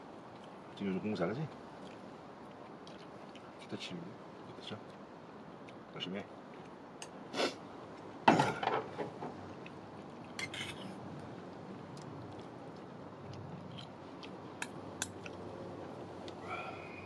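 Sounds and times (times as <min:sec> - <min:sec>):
steady low hiss: 0:00.0 - 0:17.0
utensils clinking against dishes: 0:10.4 - 0:10.9.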